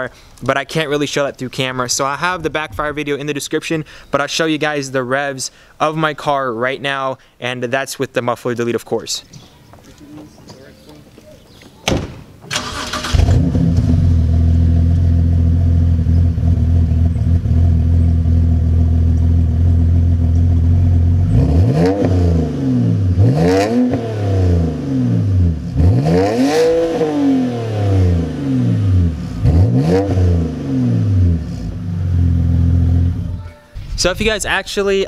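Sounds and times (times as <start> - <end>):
car engine starting: 12.5 - 33.4
car engine idling: 12.6 - 21.4, 30.6 - 33.4
car engine revving: 12.6 - 33.4.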